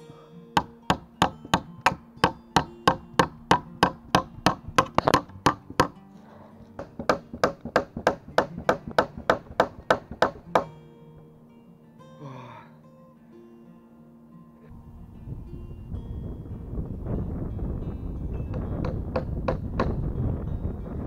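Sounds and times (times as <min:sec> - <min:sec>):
hammer striking nails into wood: 0:00.6 - 0:06.0, 0:06.8 - 0:10.7, 0:18.5 - 0:20.0.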